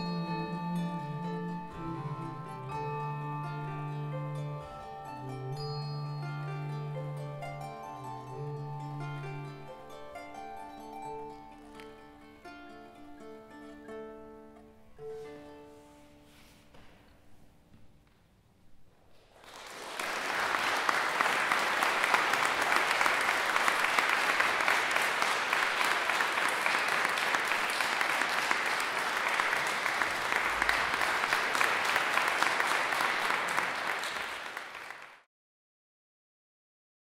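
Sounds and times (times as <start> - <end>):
audience applauding: 19.3 - 35.3.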